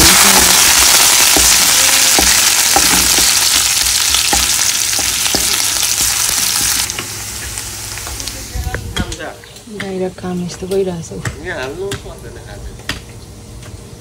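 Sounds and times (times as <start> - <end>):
onion sizzling in hot oil: 0.0 - 9.1
wooden spatula knocking on pan: 1.2 - 5.6.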